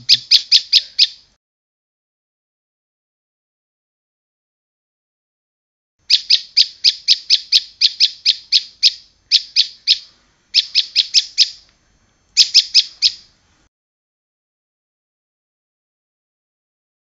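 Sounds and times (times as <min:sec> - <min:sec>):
bird high sharp chirps: 0:00.0 - 0:01.2, 0:06.1 - 0:11.6, 0:12.4 - 0:13.3.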